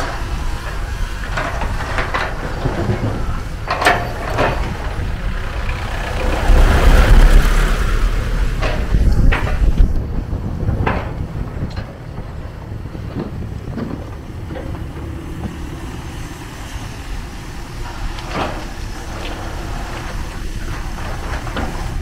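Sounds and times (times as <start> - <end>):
bucket clanks and scrapes: 0.0 - 10.0
excavator diesel engine running: 0.0 - 22.0.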